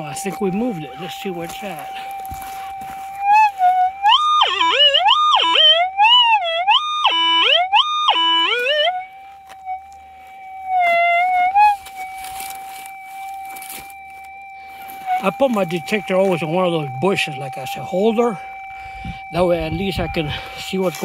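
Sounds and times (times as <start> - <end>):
metal detector threshold tone: 0.0 - 21.0
metal detector target signals: 10.7 - 18.4.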